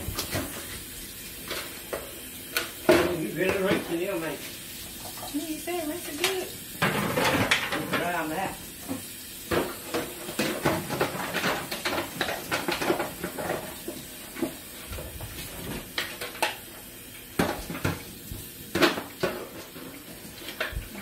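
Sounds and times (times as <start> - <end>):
pans and dishes clattering: 1.4 - 4.2, 6.2 - 16.7, 17.4 - 21.0.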